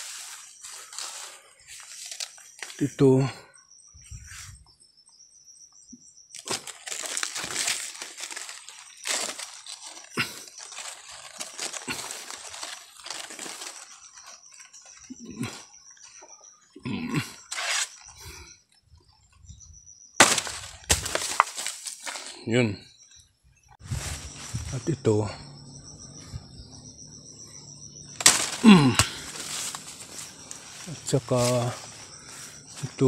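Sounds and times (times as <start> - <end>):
leaves and branches rustling: 0.0 - 3.2, 6.4 - 16.3, 20.2 - 22.4, 23.7 - 33.0.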